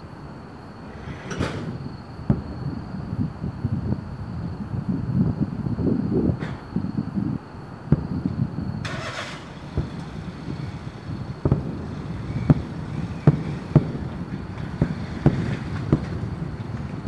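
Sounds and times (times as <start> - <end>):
brief hiss: 0.9 - 1.8
distant firework booms: 1.0 - 3.8, 7.9 - 17.0
steady low rumble: 9.4 - 17.0.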